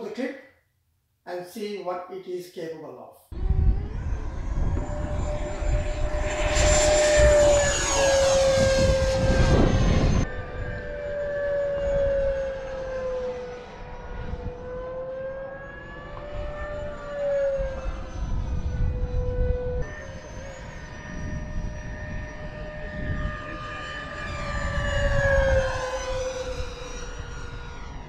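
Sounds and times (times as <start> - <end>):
low rumbling noise: 3.3 - 12.4
electric ducted fan whining: 3.4 - 28.0.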